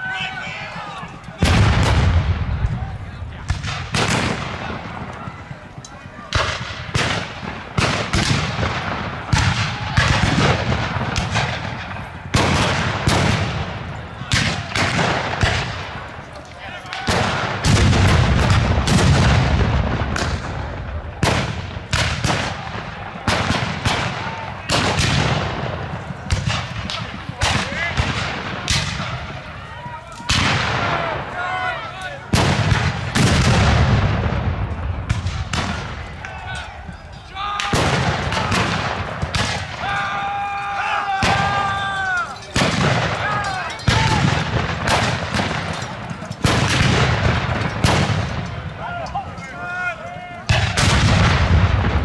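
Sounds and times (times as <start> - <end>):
heavy boom with deep rumble: 1.4 - 5.0
blank gunshots: 1.4 - 5.6, 6.3 - 16.1, 17.0 - 29.5, 32.3 - 36.4, 37.6 - 39.9, 42.5 - 48.7, 50.5 - 52.0
musket shots echoing: 3.4 - 5.0, 6.3 - 16.1, 17.0 - 29.5, 37.6 - 39.9, 42.5 - 48.7, 50.5 - 52.0
long high shout: 39.8 - 42.3.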